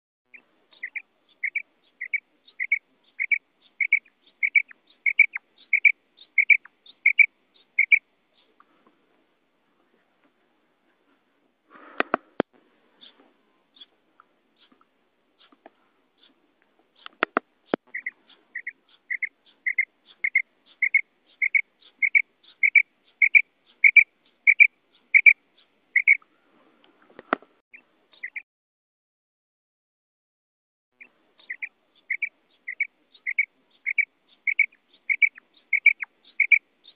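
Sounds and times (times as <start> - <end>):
quail calling: 0.3 - 8.5, 17.0 - 26.4, 31.0 - 36.9.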